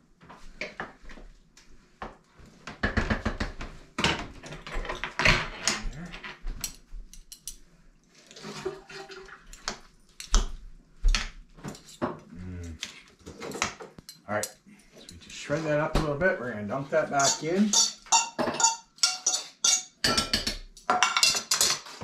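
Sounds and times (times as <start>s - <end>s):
forks scraping against a plate: 17.0s - 20.2s.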